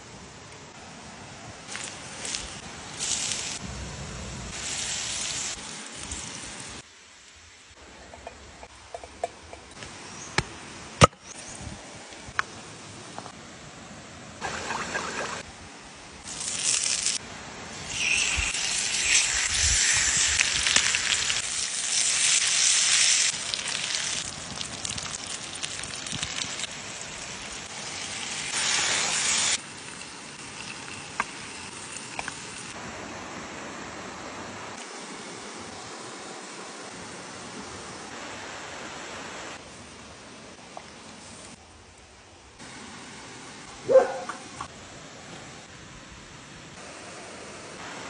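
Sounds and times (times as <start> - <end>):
fish sizzling on hot stone: 1.7 - 3.6, 4.5 - 6.8, 16.3 - 32.8.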